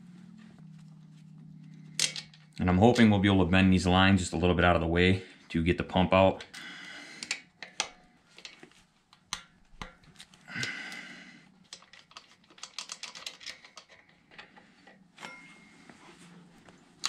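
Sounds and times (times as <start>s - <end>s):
wrench clicking on metal nuts: 11.7s - 14.1s
short ringing clink: 15.2s - 15.7s.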